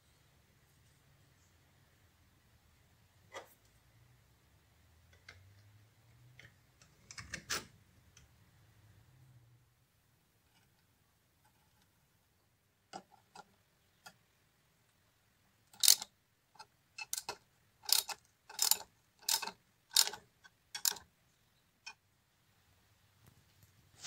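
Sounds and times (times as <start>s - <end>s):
socket ratchet clicking: 15.8s - 16.1s, 17.0s - 20.2s, 20.8s - 21.0s.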